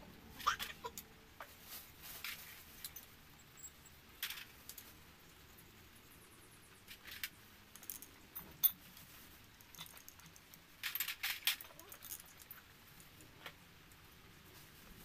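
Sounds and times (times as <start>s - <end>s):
light metallic clinks and taps: 2.3s - 4.9s, 6.9s - 13.6s.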